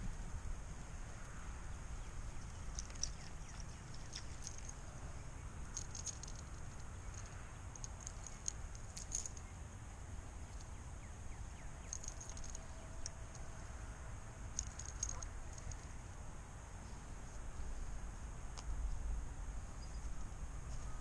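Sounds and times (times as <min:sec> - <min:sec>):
wind rumbling on microphone: 0:00.0 - 0:21.0
faint high-pitched ticks: 0:02.2 - 0:05.0, 0:10.5 - 0:13.9.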